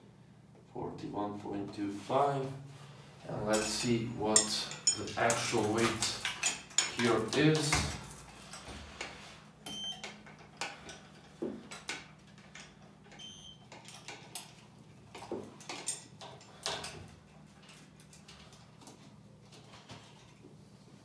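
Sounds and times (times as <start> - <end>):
steel chain clinking: 3.4 - 8.6.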